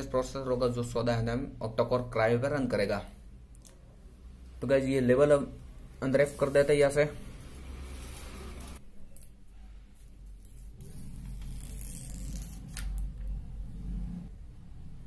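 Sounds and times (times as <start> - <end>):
plastic film peeling and crinkling: 10.1 - 13.1.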